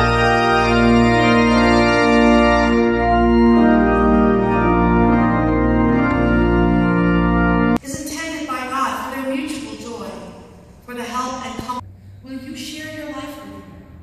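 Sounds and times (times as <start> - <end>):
organ playing sustained chords: 0.0 - 7.8.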